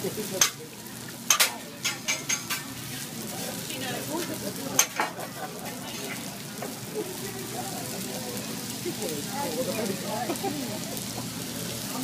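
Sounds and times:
food sizzling on steel griddle: 0:00.0 - 0:12.0
spatula clacking on metal plate: 0:01.3 - 0:02.6, 0:04.8 - 0:05.2.

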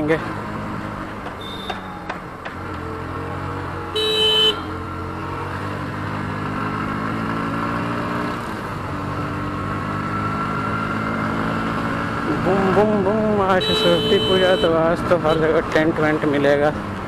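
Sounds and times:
horn beep: 0:01.4 - 0:02.0, 0:03.9 - 0:04.7, 0:13.5 - 0:15.5.

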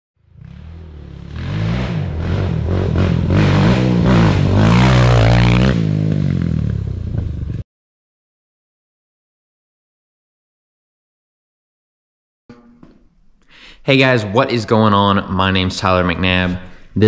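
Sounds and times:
quad engine revving: 0:00.2 - 0:07.6.

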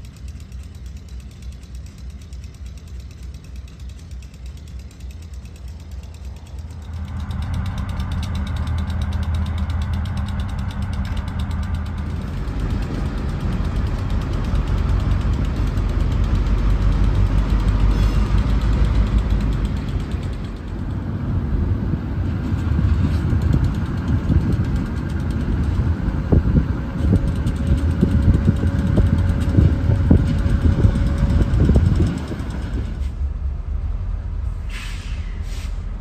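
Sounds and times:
diesel locomotives running: 0:00.0 - 0:36.0
low engine rumble: 0:00.0 - 0:36.0.

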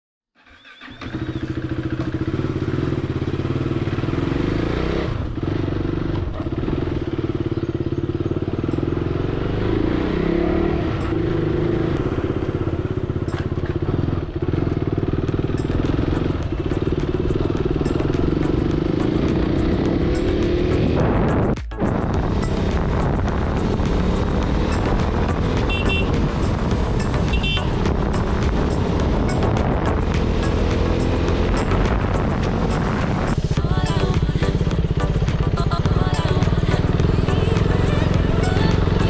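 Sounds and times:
vehicle engine running: 0:00.8 - 0:39.0.

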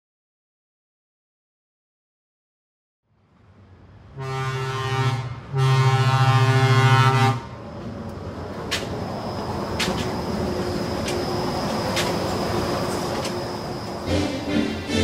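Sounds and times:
monorail train rumbling: 0:03.1 - 0:15.0
monorail horn blasts: 0:04.1 - 0:07.6, 0:14.0 - 0:15.0.

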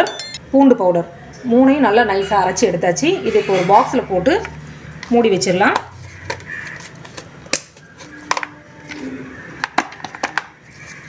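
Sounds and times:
plastic lids clicking onto tubs: 0:05.0 - 0:11.0.

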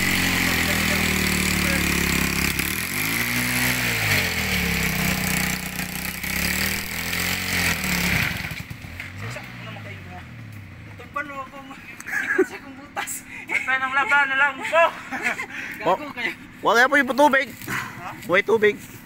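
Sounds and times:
dirt bike engine revving: 0:00.0 - 0:10.8.

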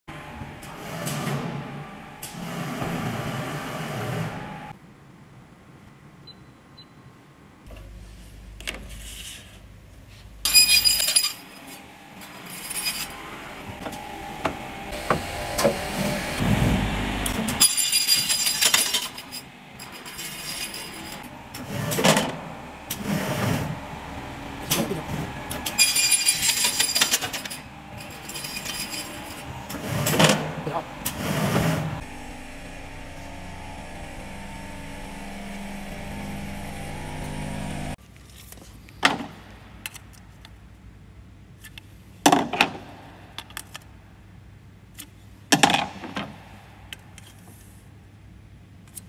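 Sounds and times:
saw cutting with ringing whine: 0:10.5 - 0:38.0
low motor hum: 0:11.5 - 0:17.6, 0:19.0 - 0:38.0.

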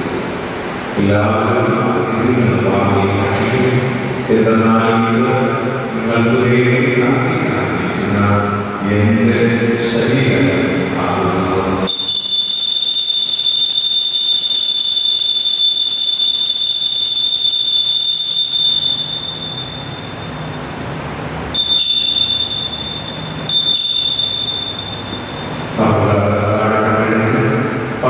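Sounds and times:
bell ringing: 0:11.9 - 0:25.8.

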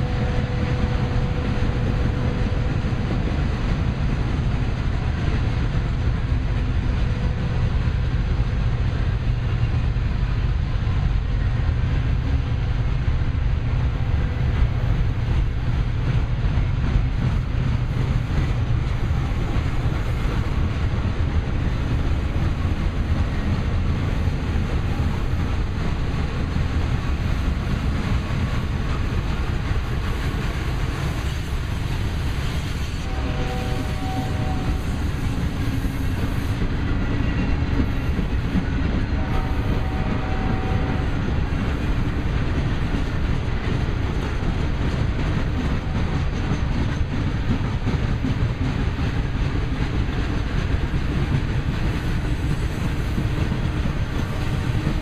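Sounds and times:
train wheels rumbling on rails: 0:00.0 - 0:55.0.

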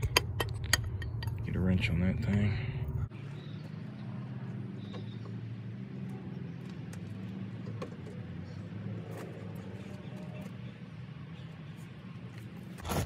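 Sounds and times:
low hum: 0:00.0 - 0:03.2.

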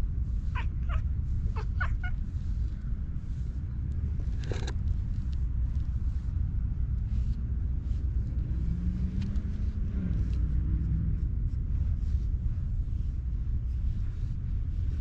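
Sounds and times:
steady low rumble: 0:00.0 - 0:15.0
grooming file scratching fur: 0:04.2 - 0:06.0.

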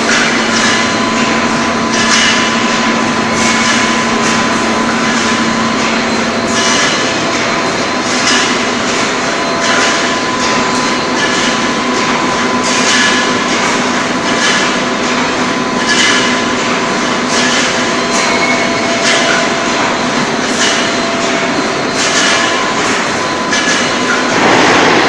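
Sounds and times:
steady machine hum: 0:00.0 - 0:25.0
welding machine clatter: 0:00.0 - 0:25.0.

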